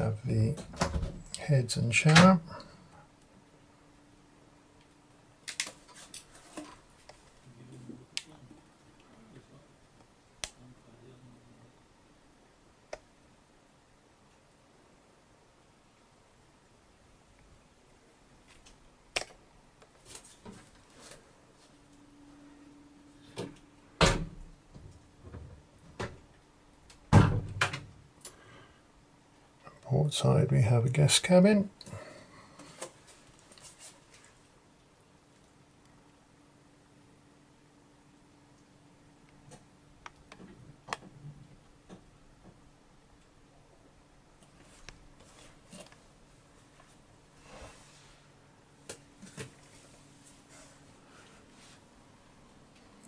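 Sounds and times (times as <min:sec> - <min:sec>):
faint steady hum: 0:00.0 - 0:53.0
wooden door knocks and clunks: 0:27.1 - 0:27.8.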